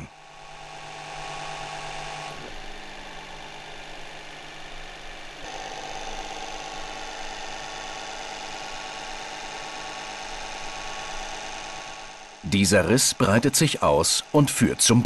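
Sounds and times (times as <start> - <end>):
hydraulic press humming: 0.0 - 15.0.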